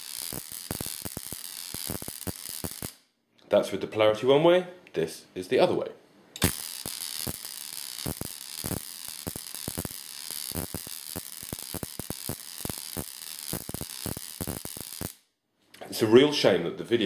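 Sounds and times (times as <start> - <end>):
electric sparks crackling and snapping: 0.0 - 3.1, 6.4 - 15.3.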